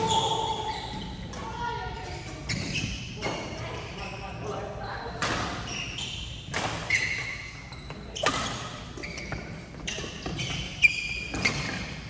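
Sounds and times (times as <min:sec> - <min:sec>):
shoes squeaking on wooden floor: 0:00.0 - 0:04.5, 0:05.6 - 0:12.0
rackets striking shuttlecock: 0:06.5 - 0:07.4.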